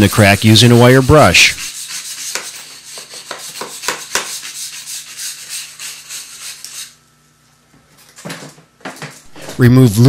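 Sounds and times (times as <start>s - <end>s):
wire brush scrubbing concrete: 0.0s - 7.0s.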